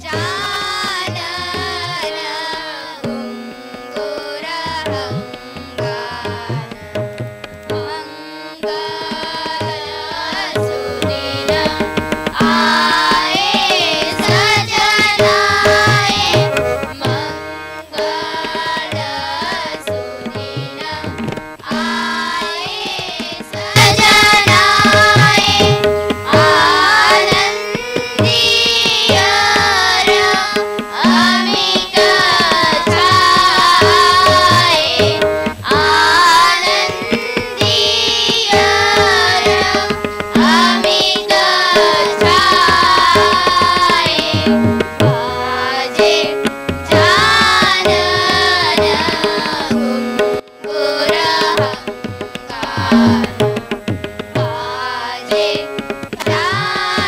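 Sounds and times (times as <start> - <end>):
children singing in chorus: 0.0 - 6.8, 7.8 - 53.7, 54.4 - 57.0
harmonium: 0.0 - 57.0
tabla: 0.0 - 57.0.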